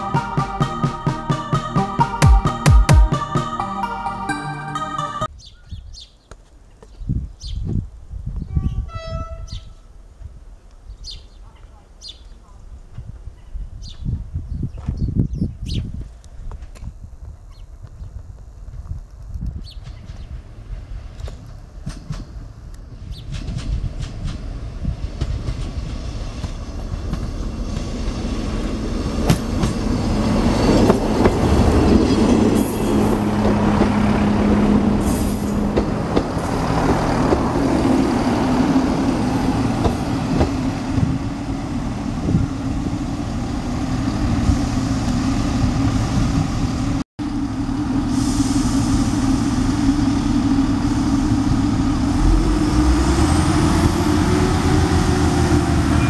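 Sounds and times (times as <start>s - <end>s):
diesel train engines droning: 0.0s - 5.3s, 19.7s - 56.0s
wheels rattling on track: 18.7s - 56.0s.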